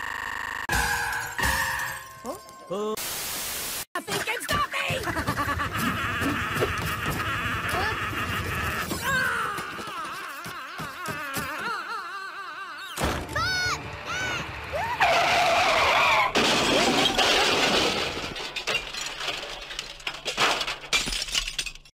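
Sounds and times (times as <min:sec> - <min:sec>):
cartoon impact: 0:00.5 - 0:02.2
cartoon shattering and breaking: 0:00.7 - 0:02.3, 0:15.1 - 0:21.9.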